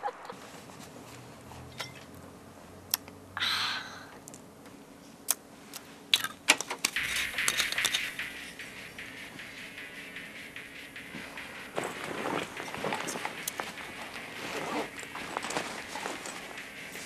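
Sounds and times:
rustling: 0:00.2 - 0:01.7, 0:11.1 - 0:17.0.

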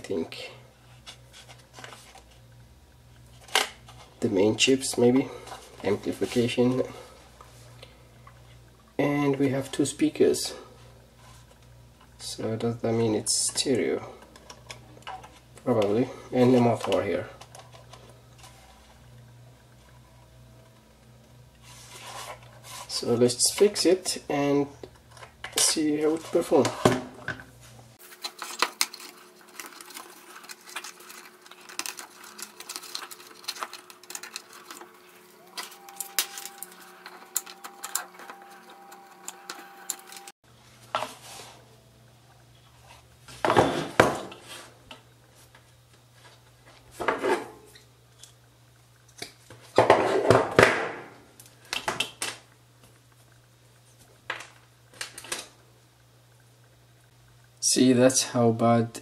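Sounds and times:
wire scraping rustles: 0:27.6 - 0:40.3.

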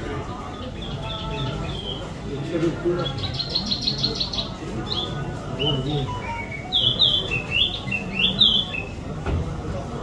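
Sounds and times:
songbird trilling and chirping: 0:00.4 - 0:02.3, 0:03.0 - 0:09.0.

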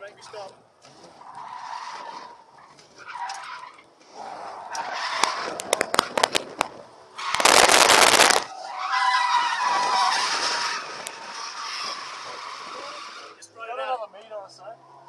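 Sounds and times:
road and tyre noise: 0:00.0 - 0:15.0
sharp clicks and knocks: 0:05.2 - 0:06.7
loud rushing noise: 0:07.4 - 0:08.5.

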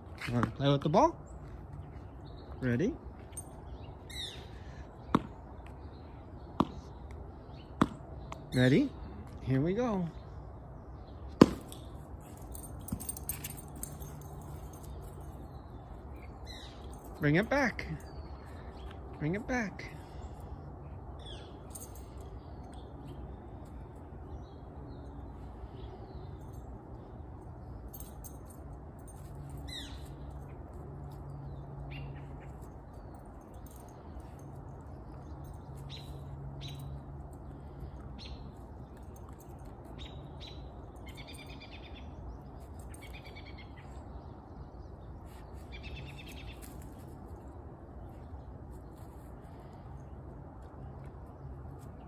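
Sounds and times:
low outdoor rumble: 0:00.0 - 0:52.0
small birds chirping: 0:00.1 - 0:52.0.

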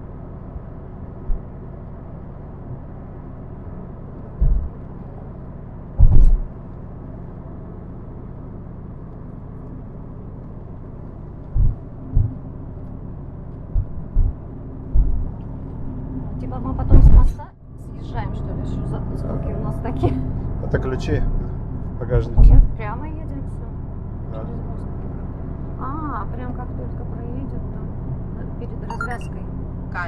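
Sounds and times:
car interior rumble: 0:00.0 - 0:30.0
short low thumps: 0:01.2 - 0:01.5, 0:04.3 - 0:04.9, 0:06.0 - 0:06.6, 0:11.4 - 0:12.5, 0:13.6 - 0:16.0, 0:16.8 - 0:17.5, 0:22.1 - 0:22.8.

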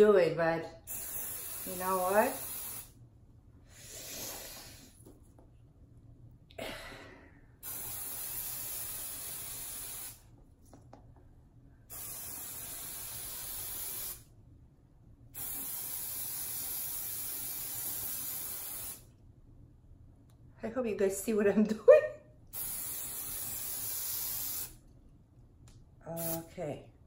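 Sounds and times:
aerosol can spraying: 0:00.9 - 0:03.0, 0:07.6 - 0:10.2, 0:11.9 - 0:14.2, 0:15.4 - 0:19.0, 0:22.5 - 0:24.8, 0:26.2 - 0:26.5.

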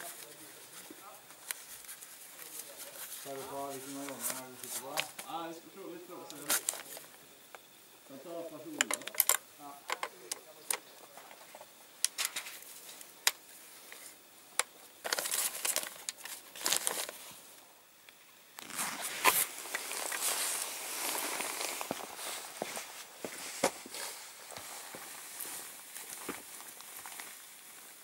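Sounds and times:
rifle parts clicking and knocking: 0:08.8 - 0:12.5
fabric case rustling: 0:15.0 - 0:17.3, 0:18.6 - 0:27.3
footsteps walking: 0:18.6 - 0:27.9.

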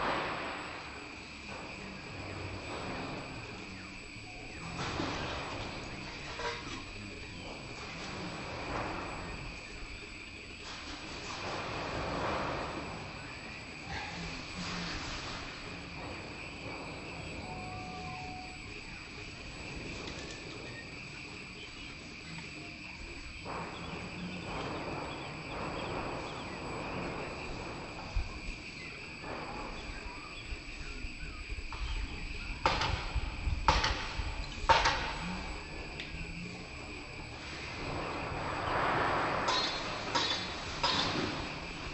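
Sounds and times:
insect chorus: 0:00.0 - 0:41.9
hammering on tin sheeting: 0:32.6 - 0:35.6, 0:37.6 - 0:41.9.

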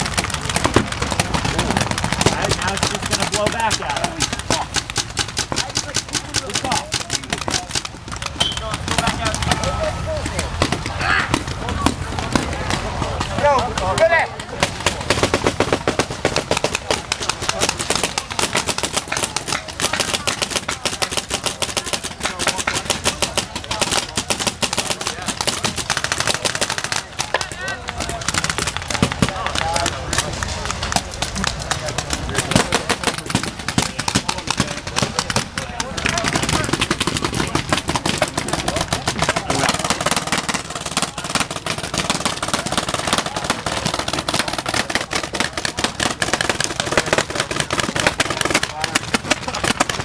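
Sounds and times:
paintball markers firing rapidly: 0:00.0 - 0:50.0
people shouting: 0:08.3 - 0:14.6.

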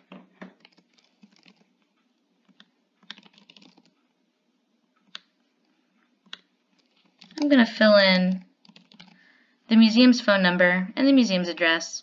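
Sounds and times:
faint keyboard typing: 0:00.0 - 0:09.4.

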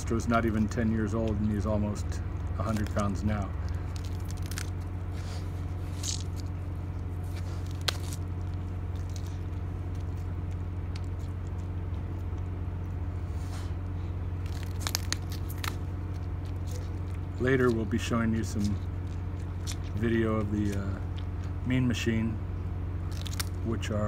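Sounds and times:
steady low hum: 0:00.0 - 0:24.0
tortoise chewing cactus crunches: 0:00.0 - 0:24.0.

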